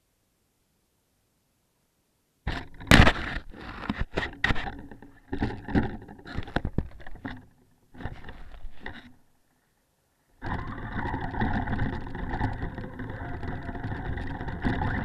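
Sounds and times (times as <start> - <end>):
knocks and scrapes on microphone: 2.5 - 9.2.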